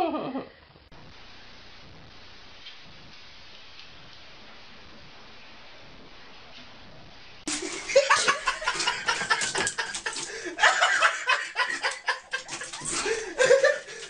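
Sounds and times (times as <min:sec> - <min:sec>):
faint steady hiss: 0:00.0 - 0:14.0
people laughing: 0:07.5 - 0:14.0.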